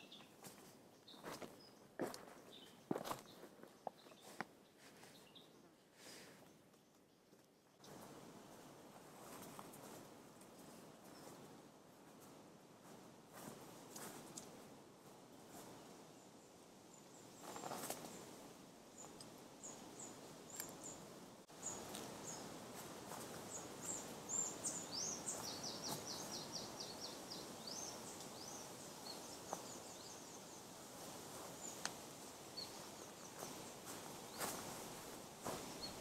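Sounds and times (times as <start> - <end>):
birds chirping: 0.0 - 8.6, 18.9 - 36.0
background hiss: 0.0 - 36.0
soft rustles and clicks: 9.0 - 11.5, 17.4 - 18.2.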